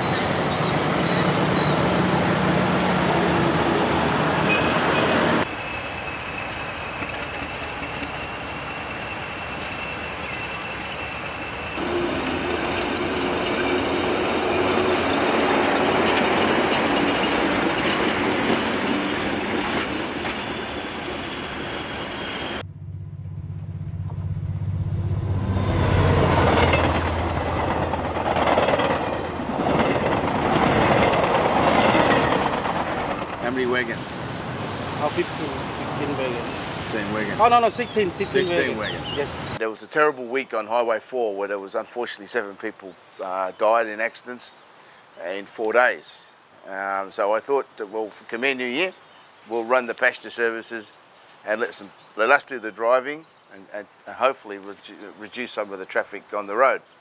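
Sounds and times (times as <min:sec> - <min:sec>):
locomotive engine running: 0:00.0 - 0:39.6
road traffic: 0:00.0 - 0:39.6
train wheels clattering overhead: 0:26.0 - 0:34.1.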